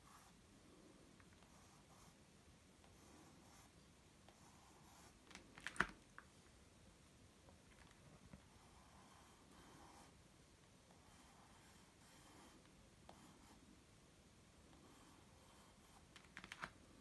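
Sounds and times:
pencil scratching on paper: 0.0s - 0.4s, 1.4s - 2.2s, 2.8s - 5.2s, 8.4s - 10.2s, 10.9s - 13.7s, 14.7s - 16.1s.

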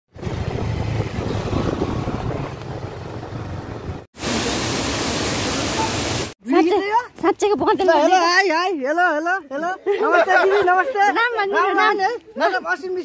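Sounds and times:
rushing noise with low rumble: 0.1s - 4.7s
waterfall rushing: 4.2s - 6.4s.

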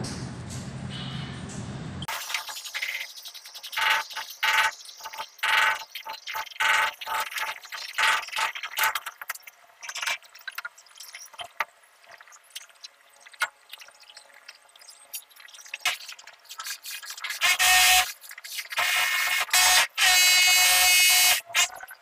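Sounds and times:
pipe fittings clicking and knocking: 3.2s - 18.8s.

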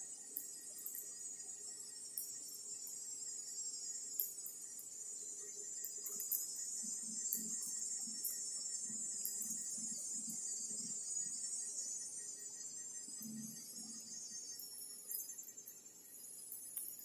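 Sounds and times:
insects chirring: 0.0s - 17.0s.

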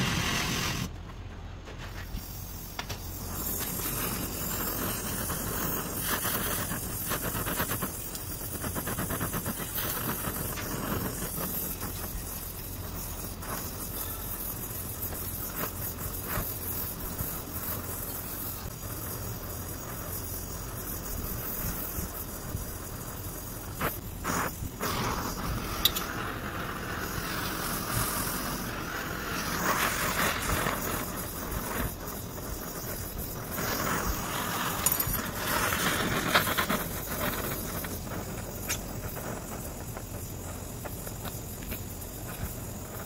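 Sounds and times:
sparks crackling: 0.0s - 1.0s, 1.7s - 43.0s
welding torch flame hissing: 0.0s - 43.0s.

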